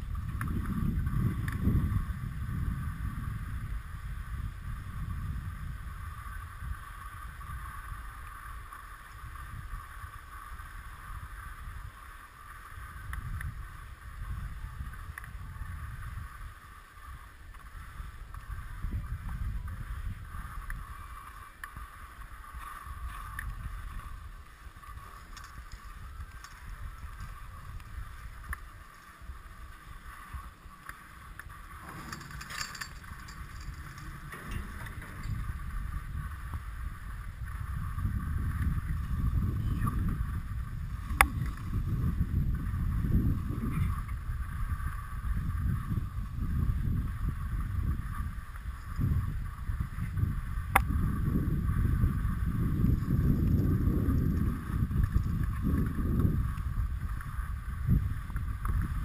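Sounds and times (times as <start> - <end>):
skis sliding over snow: 0.0 - 50.6
wind buffeting microphone: 0.0 - 59.0
tow clattering past lift tower: 28.8 - 37.3.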